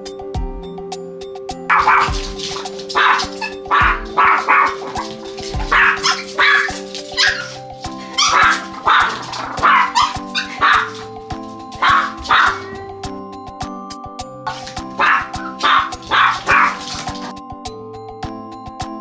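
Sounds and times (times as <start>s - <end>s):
background music: 0.0s - 19.0s
small dogs yapping: 1.7s - 12.9s, 14.5s - 17.4s.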